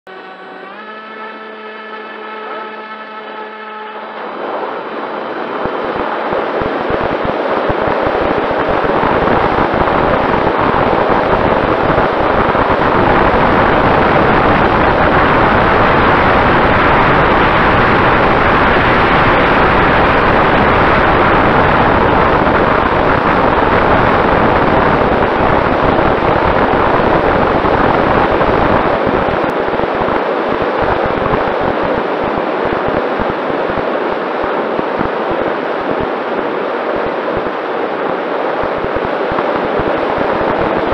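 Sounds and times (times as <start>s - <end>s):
electric motor and propeller whine: 0.1s - 30.0s
airflow rushing over microphone: 0.3s - 40.9s.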